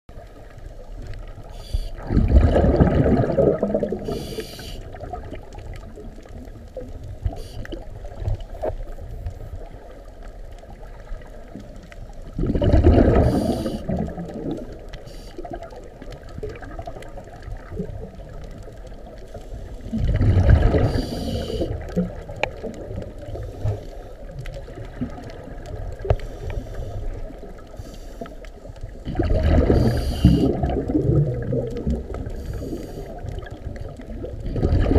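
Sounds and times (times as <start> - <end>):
gurgling hiss: 1.5 - 5.2, 12.6 - 14.2, 19.3 - 21.9, 29.2 - 31.1, 32.2 - 33.4
bubbling exhalation underwater: 2.0 - 4.4, 12.3 - 14.7, 19.9 - 23.1, 29.0 - 32.3, 33.2 - 34.9.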